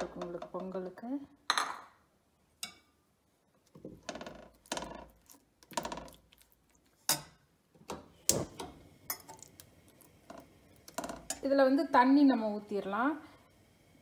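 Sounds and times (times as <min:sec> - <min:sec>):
metal spoon scraping and tapping pan: 0:02.6 - 0:03.0, 0:07.0 - 0:08.0, 0:10.9 - 0:11.5.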